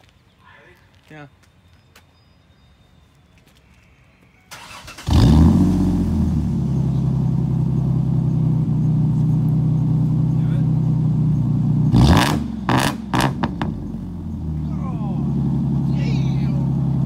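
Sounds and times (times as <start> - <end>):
engine cranking and starting: 4.5 - 6.0
engine idling: 5.9 - 17.0.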